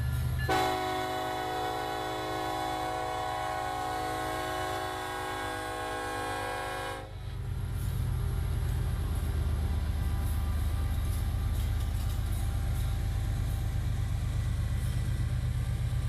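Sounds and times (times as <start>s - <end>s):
locomotive air horn: 0.5s - 7.2s
diesel engine rumble: 7.1s - 16.0s.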